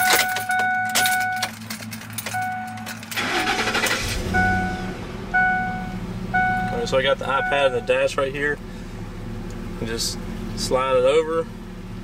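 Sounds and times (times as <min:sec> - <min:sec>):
engine cranking and idling: 0:00.0 - 0:11.8
warning chime dinging: 0:02.3 - 0:08.1.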